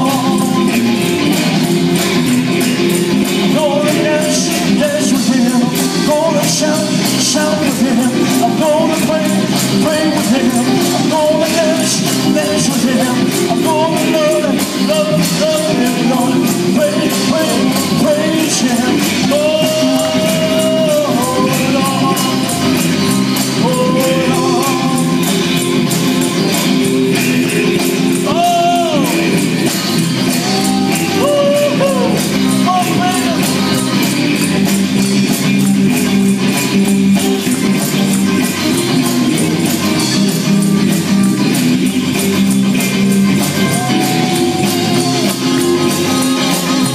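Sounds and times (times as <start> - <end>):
man singing into microphone: 0.0 - 1.3, 3.3 - 25.6, 28.1 - 29.6, 30.3 - 33.9
drum kit beat: 0.0 - 46.9
electric guitars: 0.0 - 46.9.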